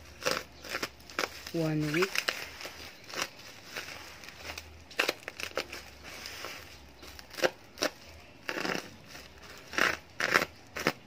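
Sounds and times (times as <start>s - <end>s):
plastic wrap crinkling: 0.0s - 11.0s.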